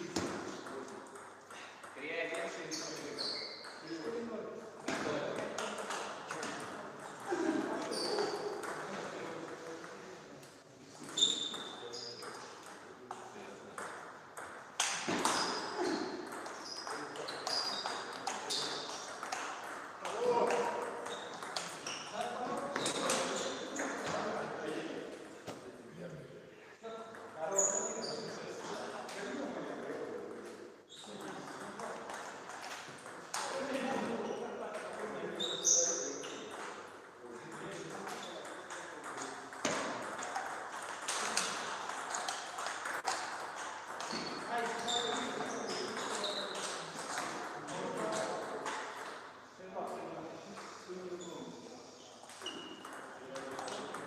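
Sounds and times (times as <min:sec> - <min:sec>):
table tennis ball bouncing: 0:00.1 - 0:04.0, 0:04.8 - 0:10.0, 0:11.0 - 0:24.4, 0:31.0 - 0:49.3, 0:52.2 - 0:54.0.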